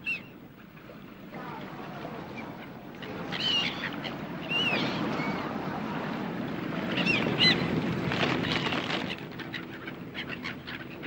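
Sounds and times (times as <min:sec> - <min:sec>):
harbour water washing: 0:00.7 - 0:11.0
gulls calling: 0:01.3 - 0:07.8.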